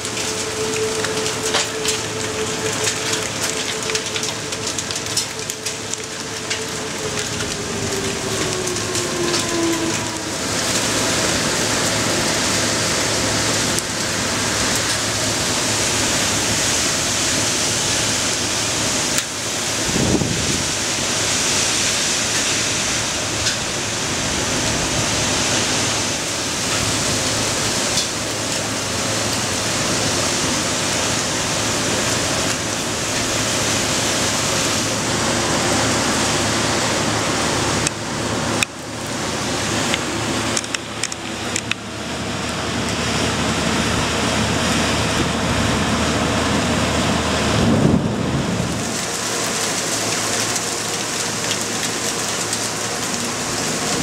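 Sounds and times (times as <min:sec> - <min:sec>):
hailstone ticks: 0:00.0 - 0:10.9, 0:49.2 - 0:54.0
rain and hail pouring down: 0:00.0 - 0:54.0.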